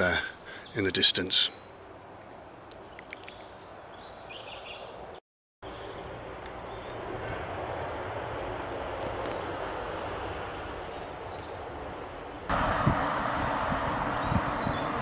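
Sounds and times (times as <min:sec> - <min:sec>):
steady rushing noise: 0:06.9 - 0:15.0.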